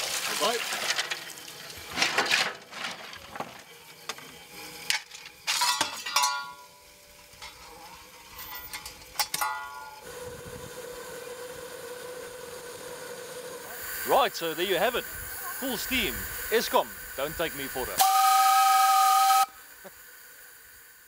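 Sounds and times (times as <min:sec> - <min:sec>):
shovel clanging against metal door: 0:05.5 - 0:06.7.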